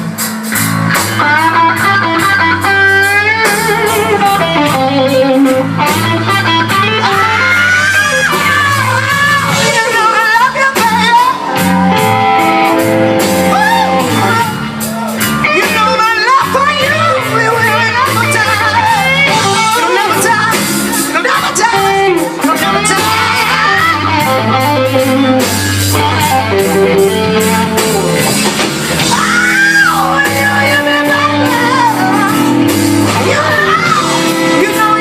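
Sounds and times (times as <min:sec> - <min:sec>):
live rock band playing: 0:00.0 - 0:35.0
man singing: 0:02.9 - 0:11.8, 0:15.4 - 0:25.4, 0:29.1 - 0:35.0.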